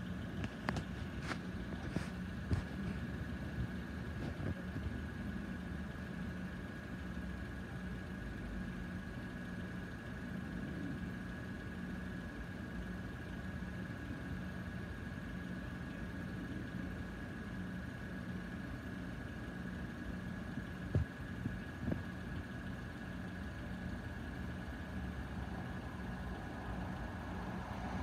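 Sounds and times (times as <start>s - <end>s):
car engines idling: 0.0s - 28.0s.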